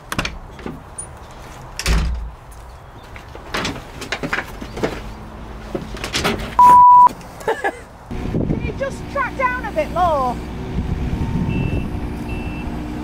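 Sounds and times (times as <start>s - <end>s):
door clicks and knocks: 1.8s - 2.3s
heavy door thud: 1.8s - 2.4s.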